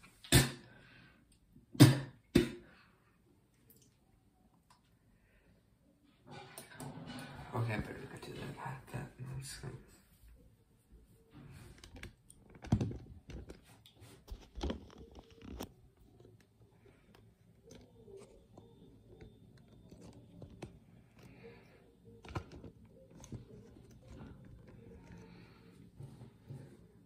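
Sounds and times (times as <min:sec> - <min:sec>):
phone handling clicks and rustles: 0:22.0 - 0:25.1.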